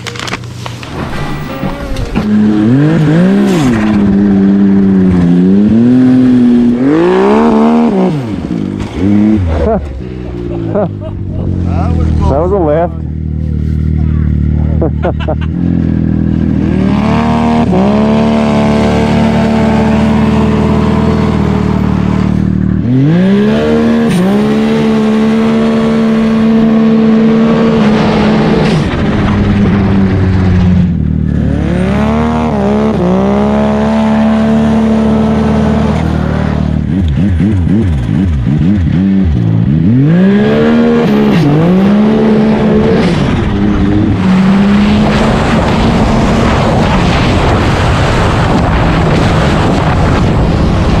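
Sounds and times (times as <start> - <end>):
snowmobile engine accelerating: 0.0 - 51.0.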